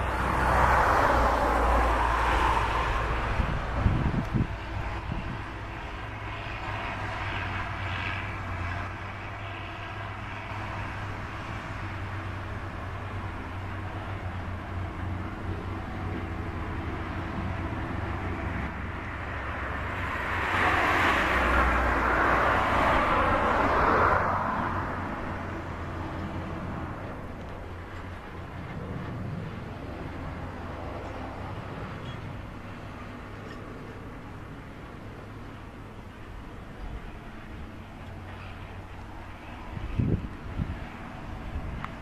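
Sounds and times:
broad rushing noise: 0.0s - 42.0s
tractor diesel engine under load: 0.0s - 42.0s.

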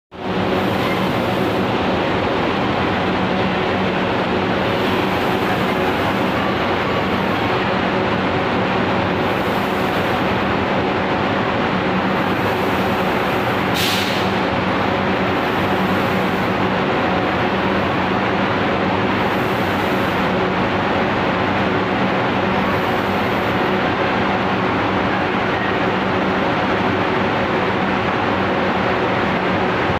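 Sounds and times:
machinery running: 0.1s - 29.9s
brief hiss: 13.7s - 14.4s.

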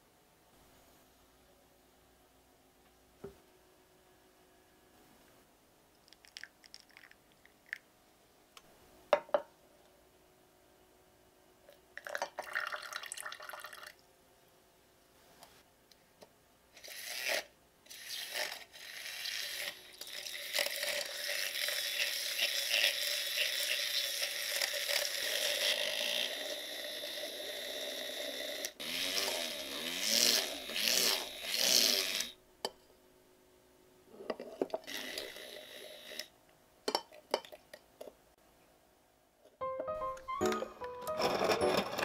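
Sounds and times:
milk frother whirring: 16.8s - 32.3s.

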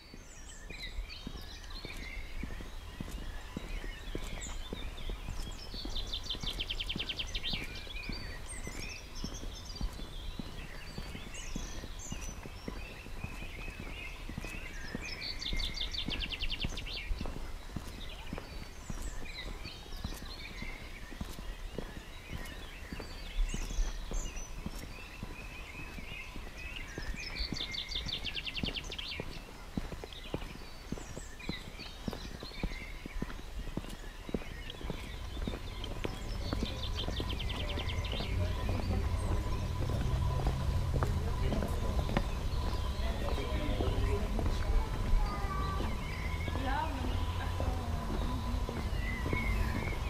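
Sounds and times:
footsteps on pavement: 0.0s - 50.0s
songbirds singing: 0.0s - 50.0s
low steady rumble: 35.2s - 50.0s.

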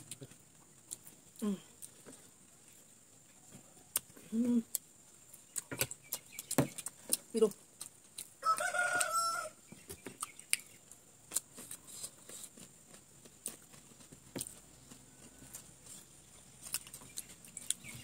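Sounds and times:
chewing: 0.0s - 9.3s, 10.0s - 18.0s
rooster crowing: 8.4s - 9.6s, 15.0s - 15.9s.

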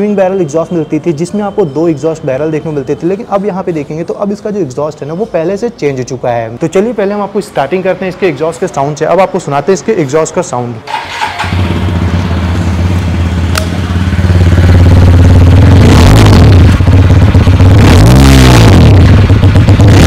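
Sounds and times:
motorcycle engine idling and revving: 10.9s - 20.0s.

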